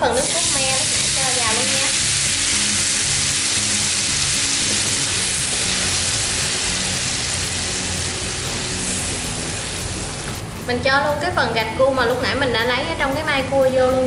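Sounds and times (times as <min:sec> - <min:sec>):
sauce sizzling in a frying pan: 0:00.0 - 0:10.6
background music: 0:00.0 - 0:14.0.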